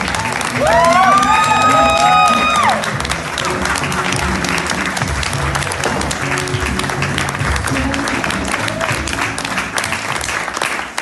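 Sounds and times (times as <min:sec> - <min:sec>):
recorded music with bass line: 0:00.0 - 0:10.2
audience applauding: 0:00.0 - 0:11.0.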